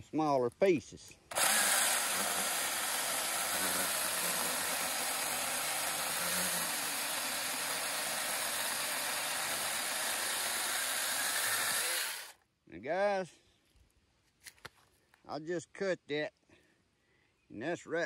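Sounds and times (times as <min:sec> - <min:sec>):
chainsaw cutting wood: 0:01.3 - 0:12.4.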